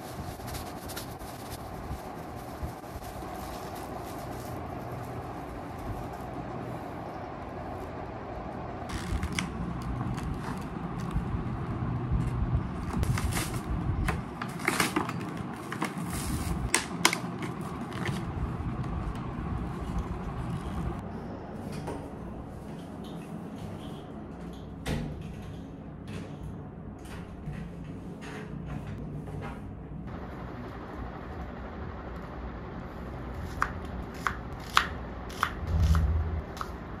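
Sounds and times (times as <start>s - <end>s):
paper wrapping rustling: 0.0s - 6.7s, 12.8s - 18.3s.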